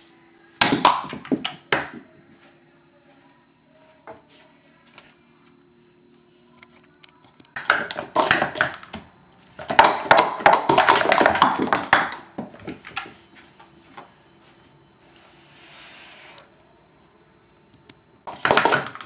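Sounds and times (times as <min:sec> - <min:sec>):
plastic cups clattering: 0:07.6 - 0:13.1, 0:18.3 - 0:19.0.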